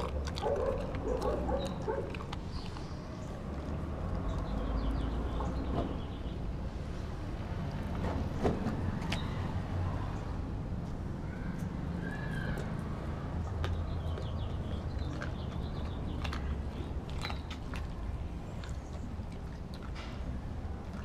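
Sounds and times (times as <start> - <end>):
dog eating from metal bowl: 0.0 - 4.5, 13.7 - 21.0.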